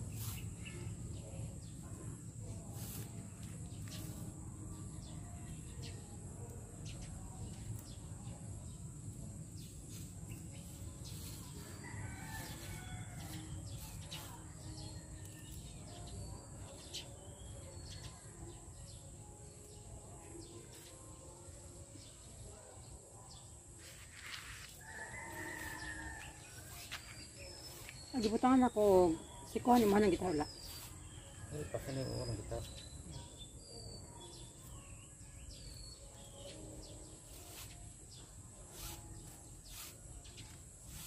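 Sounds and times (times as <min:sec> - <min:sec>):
rooster crowing: 0:11.8 - 0:13.4, 0:24.8 - 0:26.8.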